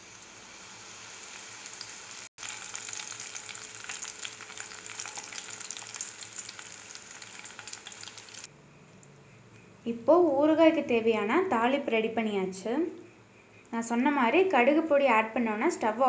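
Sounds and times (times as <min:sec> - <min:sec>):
chillies sizzling in hot oil: 0:00.0 - 0:08.5.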